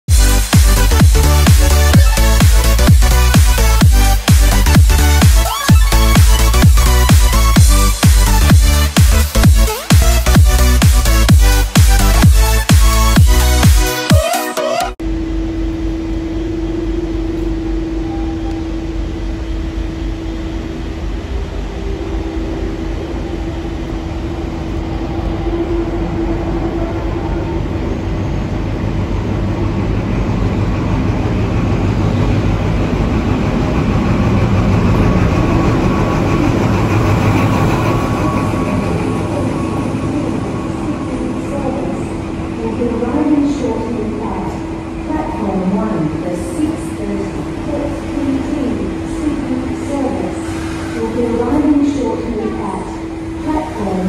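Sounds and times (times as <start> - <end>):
diesel train engine: 0.1 - 14.1, 15.0 - 54.0
train wheels rolling on track: 17.0 - 54.0.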